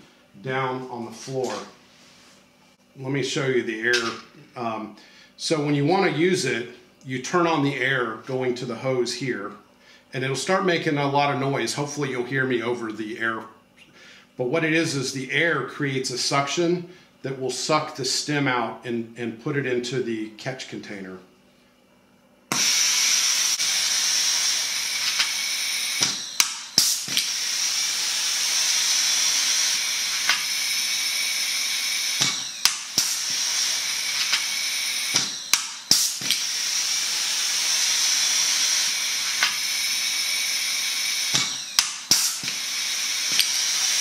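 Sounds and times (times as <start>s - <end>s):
vacuum hissing: 22.5s - 44.0s
rivet gun snaps: 26.0s - 27.3s, 30.2s - 30.5s, 32.2s - 33.2s, 35.1s - 36.5s, 39.3s - 39.6s, 41.3s - 42.6s.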